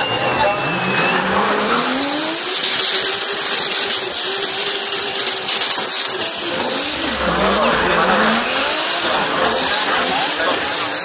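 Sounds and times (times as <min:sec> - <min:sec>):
car engine revving: 0:00.0 - 0:11.0
tyres spinning with loud hiss: 0:01.1 - 0:11.0.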